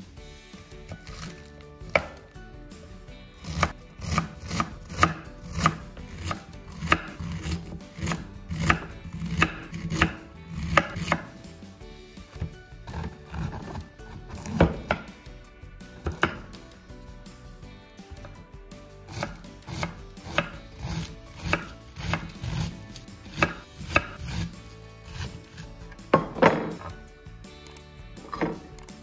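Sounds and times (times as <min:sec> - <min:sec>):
knife slicing cabbage on board: 0:00.9 - 0:02.3, 0:03.4 - 0:11.4, 0:12.3 - 0:15.1, 0:16.0 - 0:16.6, 0:19.1 - 0:25.7.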